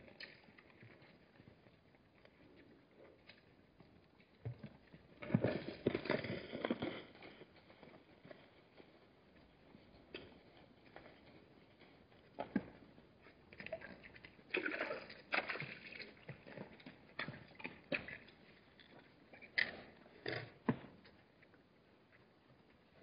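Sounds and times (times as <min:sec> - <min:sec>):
water sloshing and splashing: 0:13.5 - 0:18.6.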